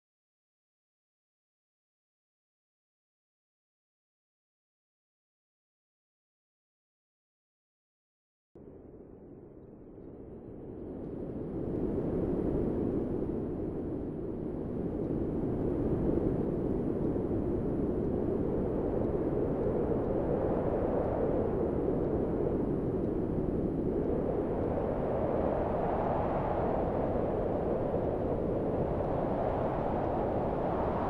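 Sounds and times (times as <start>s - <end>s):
low rushing wind: 8.6s - 31.0s.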